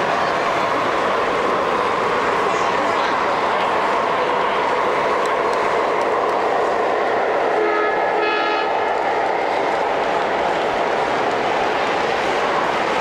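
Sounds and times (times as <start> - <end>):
model train rolling on track: 0.0 - 13.0
electronic diesel horn: 7.6 - 8.7.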